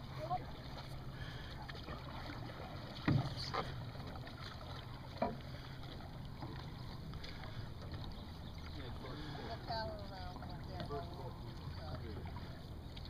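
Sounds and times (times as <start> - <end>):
paddles knocking on hulls: 1.7 - 11.5.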